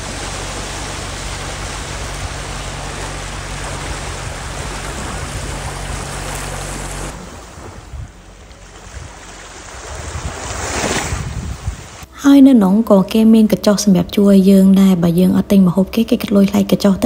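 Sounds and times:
small waves breaking on shore: 0:00.0 - 0:12.0
shallow water lapping: 0:00.0 - 0:12.1.

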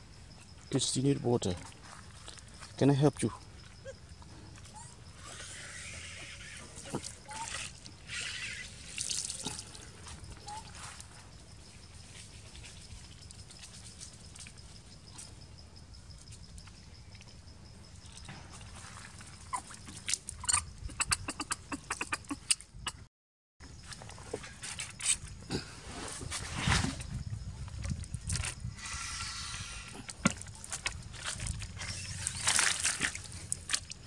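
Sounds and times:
water sloshing and dripping: 0:06.7 - 0:11.2, 0:16.6 - 0:20.6, 0:30.0 - 0:34.0.

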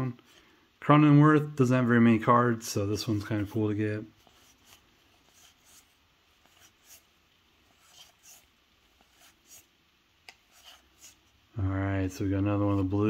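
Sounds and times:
cards sliding swishes: 0:03.0 - 0:11.4.

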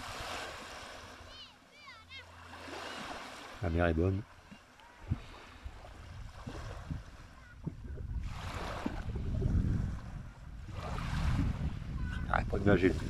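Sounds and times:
sea waves lapping on shore: 0:00.0 - 0:13.0
wind rumble on microphone: 0:05.0 - 0:13.0.

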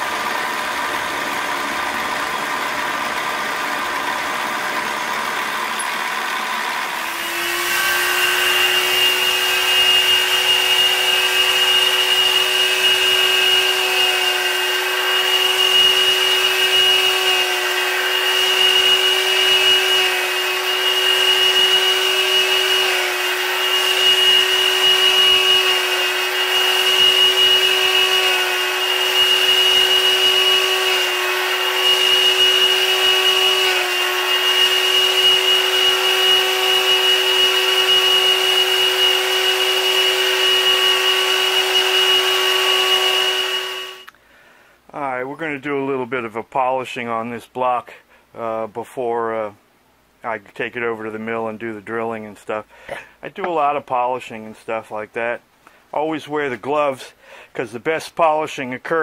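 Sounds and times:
machine motor whine: 0:00.0 - 0:44.1
milling machine: 0:00.0 - 0:44.1.

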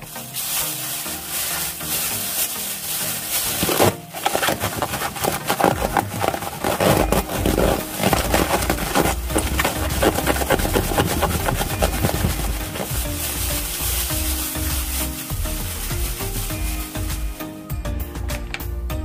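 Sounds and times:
plastic bag crinkling: 0:00.0 - 0:17.5.

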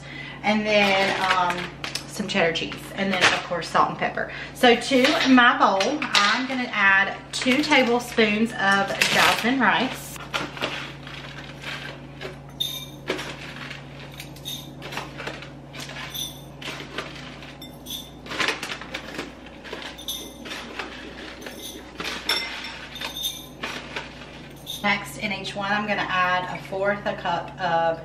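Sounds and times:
plastic bag crinkling: 0:10.2 - 0:24.8
glass bowls clinking: 0:12.5 - 0:13.4, 0:14.1 - 0:15.0, 0:15.9 - 0:16.6, 0:17.5 - 0:19.1, 0:19.7 - 0:23.8, 0:24.5 - 0:25.0.

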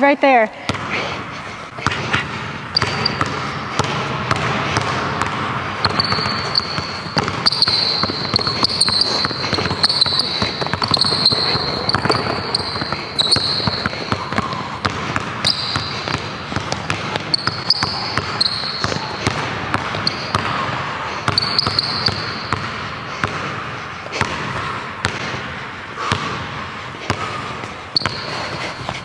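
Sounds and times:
shoe squeaks: 0:02.7 - 0:03.4, 0:05.8 - 0:16.2, 0:17.2 - 0:20.6, 0:21.3 - 0:22.6, 0:27.9 - 0:29.0
basketball bouncing on hardwood: 0:02.8 - 0:20.6, 0:21.3 - 0:23.4.

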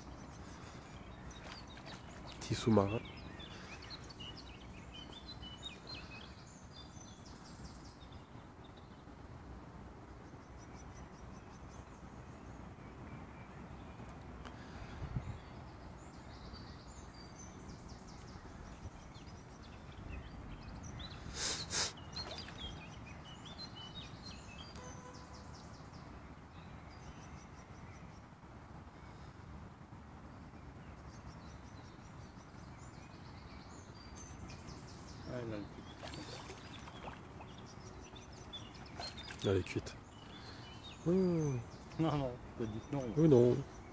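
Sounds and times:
outdoor background hiss: 0:00.0 - 0:43.9
small birds chirping: 0:00.0 - 0:43.9.

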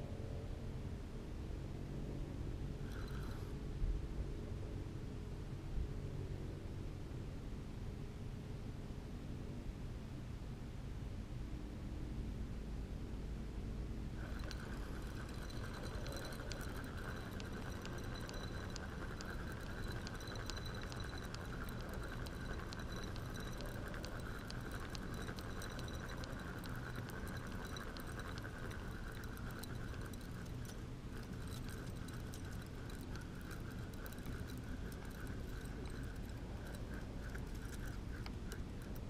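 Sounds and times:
outdoor background noise: 0:00.0 - 0:39.0
faint small ticks and clicks: 0:02.9 - 0:03.5, 0:14.2 - 0:39.0.

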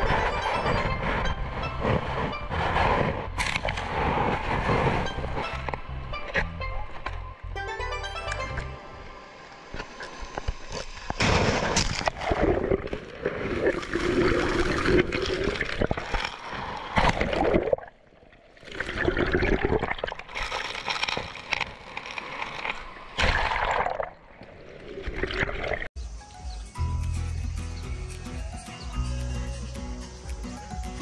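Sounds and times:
water sloshing over microphone: 0:00.0 - 0:07.2, 0:09.4 - 0:25.9
small waves breaking on pebbles: 0:20.2 - 0:23.8.

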